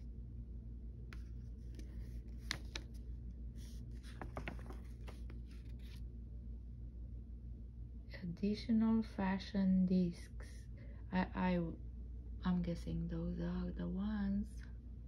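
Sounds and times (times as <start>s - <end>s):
steady low hum: 0.0s - 15.0s
paper pages rustling: 1.2s - 6.0s.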